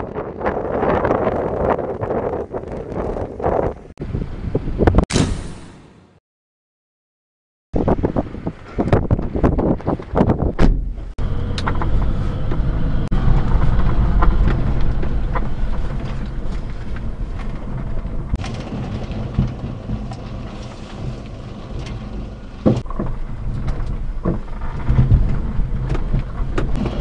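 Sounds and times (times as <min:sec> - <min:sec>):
tyres rumbling on gravel: 0:08.4 - 0:27.0.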